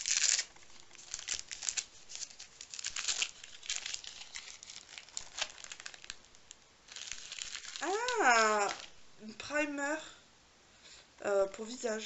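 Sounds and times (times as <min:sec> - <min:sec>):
wrapping paper crinkling and tearing: 0:00.0 - 0:09.0.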